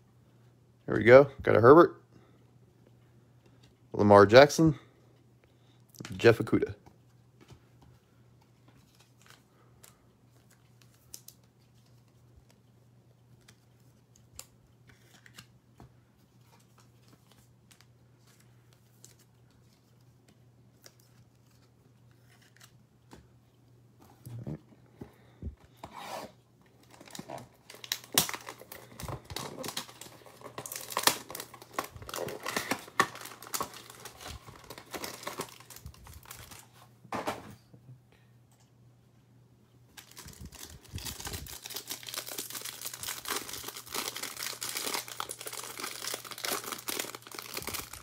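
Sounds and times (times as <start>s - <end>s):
plastic wrap crinkling: 26.7s - 36.8s, 39.9s - 48.0s.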